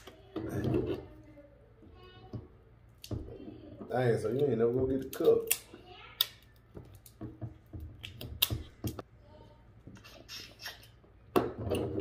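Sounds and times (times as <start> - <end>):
crab shell cracking: 5.0 - 7.2.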